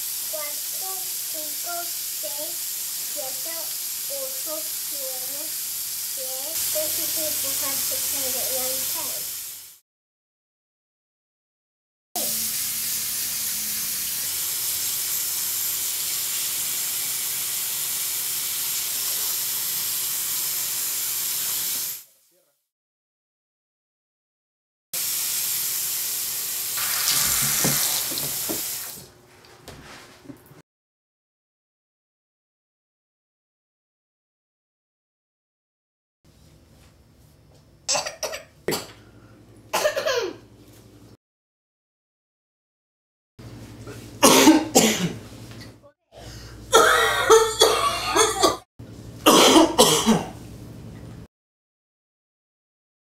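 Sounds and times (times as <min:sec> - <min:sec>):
faucet running into sink: 0:00.0 - 0:09.4, 0:12.2 - 0:22.0, 0:25.0 - 0:29.1
man coughing: 0:39.8 - 0:40.4, 0:44.2 - 0:45.2, 0:46.7 - 0:48.6, 0:49.3 - 0:50.4.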